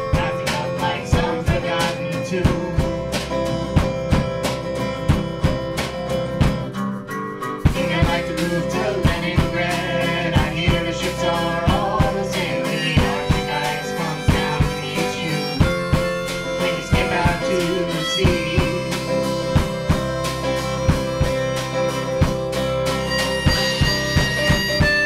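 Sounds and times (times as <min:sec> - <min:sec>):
harmonica: 0:00.0 - 0:06.8, 0:07.4 - 0:25.0
acoustic guitar strumming: 0:00.0 - 0:25.0
bowed string instrument: 0:00.0 - 0:25.0
drum kit beat: 0:00.0 - 0:25.0.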